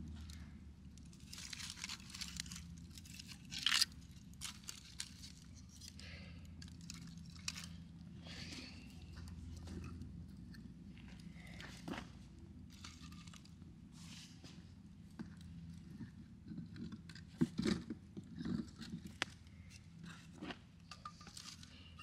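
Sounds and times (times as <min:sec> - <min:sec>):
dry material crunching and crackling: 0:00.0 - 0:10.4, 0:11.0 - 0:14.3
loud tearing crunch: 0:01.1 - 0:06.0.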